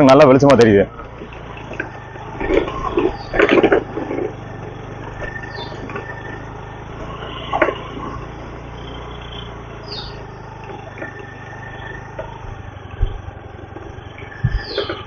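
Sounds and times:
motorcycle engine running: 0.0s - 15.0s
short irregular knocks: 14.3s - 15.0s.

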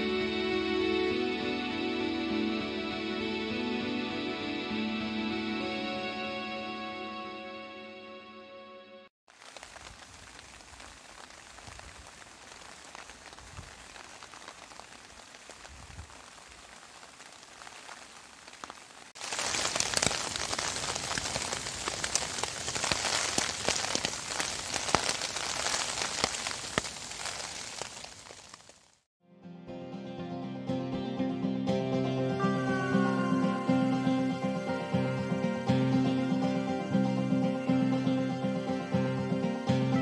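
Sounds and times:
rain pattering on a tarp: 9.3s - 29.1s.

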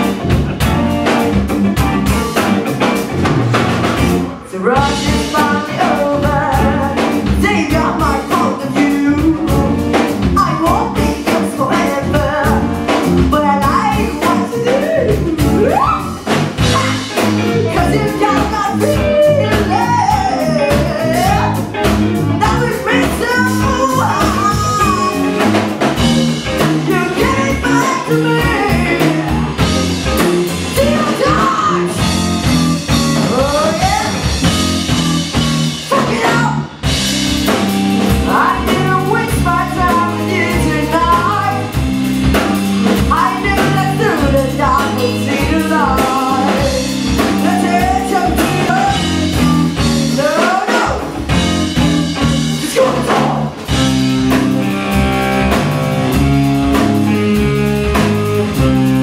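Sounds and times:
funk rock band playing: 0.0s - 59.0s
woman singing: 4.4s - 21.8s, 22.4s - 25.4s, 26.8s - 29.8s, 30.7s - 32.2s, 32.9s - 36.7s, 38.2s - 41.8s, 43.0s - 51.4s, 52.6s - 53.5s.

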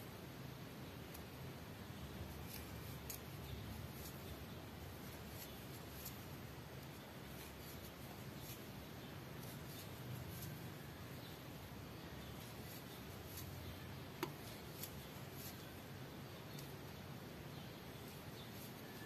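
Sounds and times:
crochet hook ticking and rustling: 2.2s - 10.9s, 12.2s - 16.9s.

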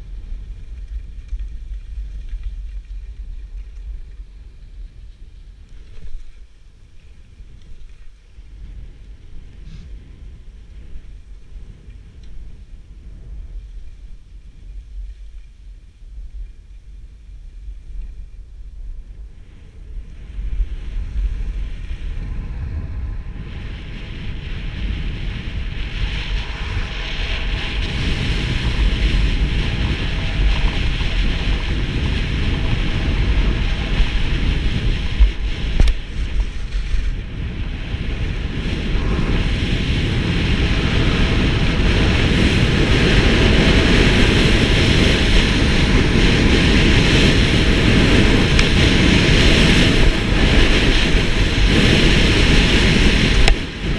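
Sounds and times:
wind rushing over microphone: 0.0s - 53.9s.

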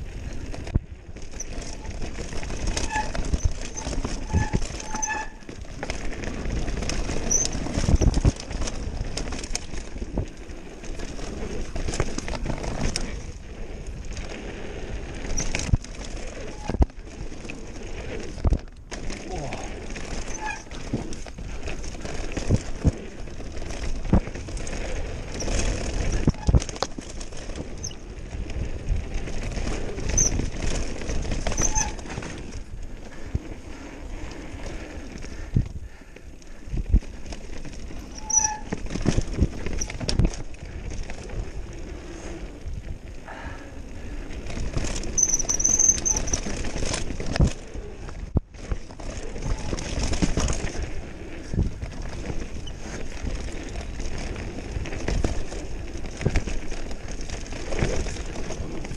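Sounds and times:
bike rattling and knocking: 0.0s - 58.9s
bike tyres running over dirt: 0.0s - 58.9s
short high squeaks: 2.6s - 5.6s, 7.2s - 8.2s, 20.1s - 20.8s, 25.3s - 26.8s, 27.7s - 28.0s, 30.1s - 30.4s, 31.5s - 32.3s, 38.1s - 38.8s, 45.1s - 46.6s.

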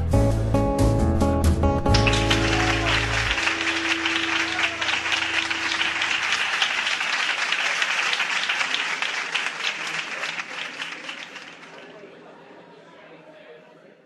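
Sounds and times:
music held note: 1.9s - 6.8s
audience applauding: 1.9s - 12.1s.

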